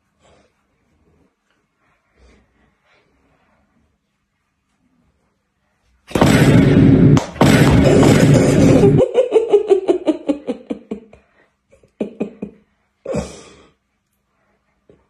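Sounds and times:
person laughing hard: 0:07.6 - 0:11.2, 0:11.8 - 0:13.4.

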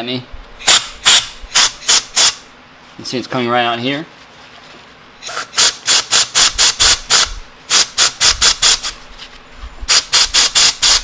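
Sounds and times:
air blow gun blasts: 0:00.6 - 0:02.5, 0:05.3 - 0:09.0, 0:09.9 - 0:11.0.

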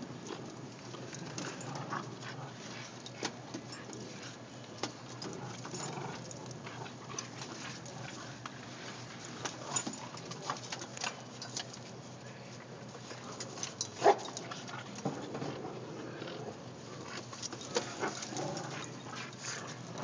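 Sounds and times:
dogs scuffling on carpet: 0:16.8 - 0:20.0.

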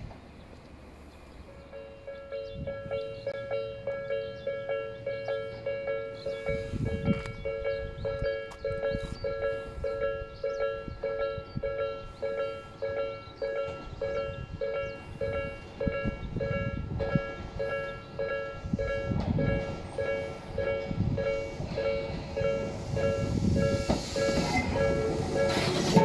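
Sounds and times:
electric train rumbling: 0:00.0 - 0:26.0
level crossing warning bell: 0:01.5 - 0:23.4.

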